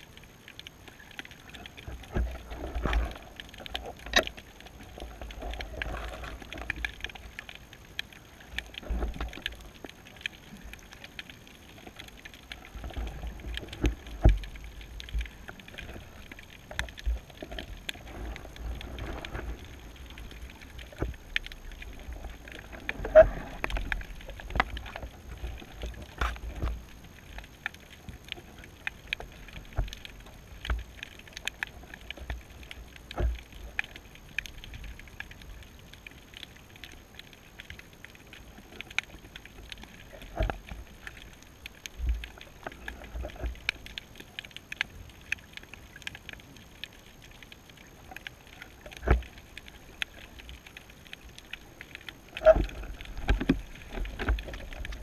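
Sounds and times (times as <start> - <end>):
underwater crackle of clicks: 0.0 - 55.0
underwater knocks and thumps: 1.8 - 7.2, 12.7 - 27.0, 52.0 - 55.0
underwater surge wash: 11.8 - 31.2.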